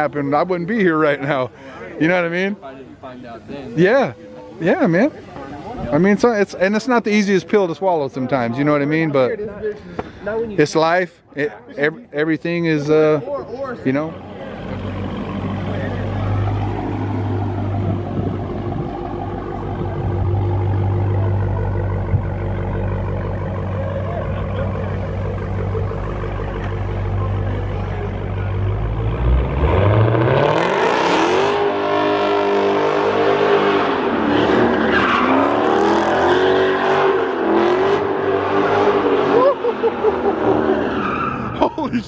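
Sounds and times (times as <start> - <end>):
car engine revving: 13.9 - 41.6.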